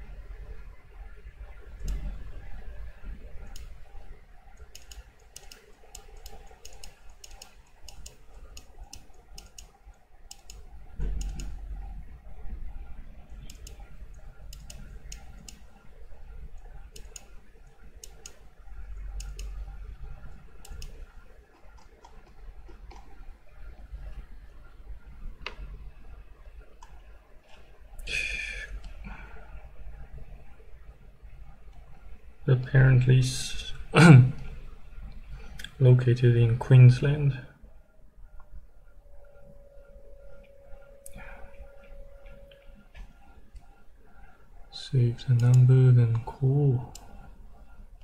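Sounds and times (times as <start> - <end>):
mouse and keyboard clicking: 3.4 - 3.8, 4.5 - 11.6, 13.4 - 15.8, 16.6 - 18.4, 19.2 - 19.6, 20.6 - 23.2.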